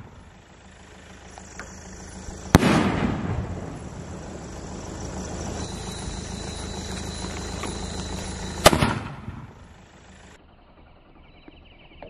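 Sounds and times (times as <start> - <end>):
firework bang: 2.5 - 4.2, 8.6 - 9.5.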